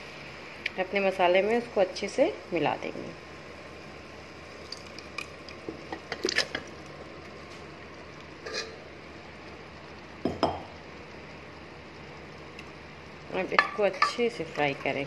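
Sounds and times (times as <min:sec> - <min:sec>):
steady low hiss: 0:00.0 - 0:15.0
ladle scraping metal pot: 0:08.4 - 0:08.8.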